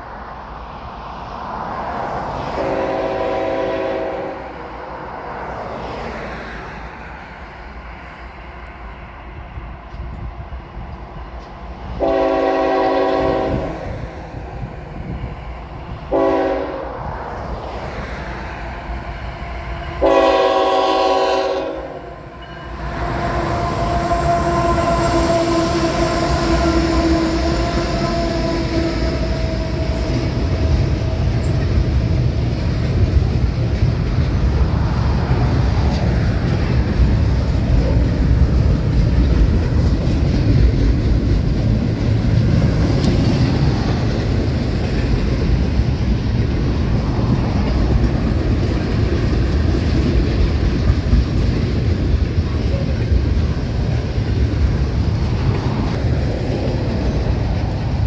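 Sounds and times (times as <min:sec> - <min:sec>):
locomotive engine drone: 0:00.0 - 0:58.0
train cars rumbling on rails: 0:00.0 - 0:58.0
multi-chime locomotive air horn: 0:02.6 - 0:04.6, 0:12.0 - 0:13.7, 0:16.1 - 0:16.9, 0:20.0 - 0:31.5.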